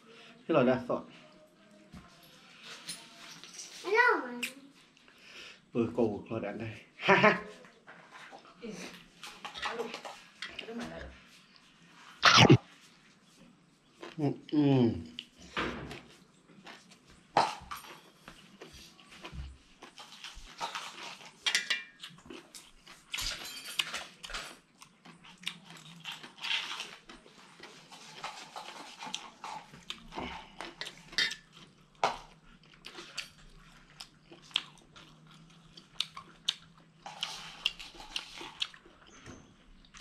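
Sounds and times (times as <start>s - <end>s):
close chewing and crunching: 7.7s - 40.0s
wet mouth clicks: 12.2s - 12.6s.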